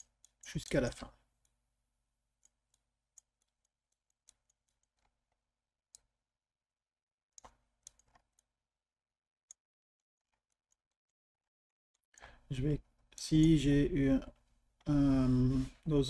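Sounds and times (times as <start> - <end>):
mouse and keyboard clicks: 7.4 - 8.5.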